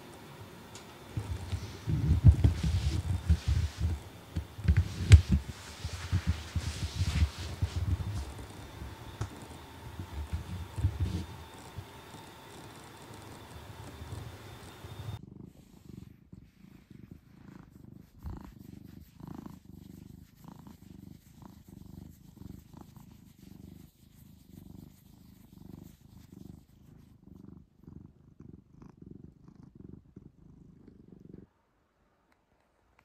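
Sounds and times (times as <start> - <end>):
cat purring: 0.0 - 32.2.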